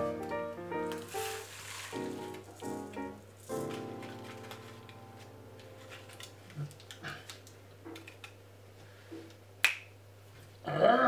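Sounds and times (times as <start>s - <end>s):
rice weights shifting: 0.8s - 8.3s
parchment paper crinkling: 0.8s - 8.4s.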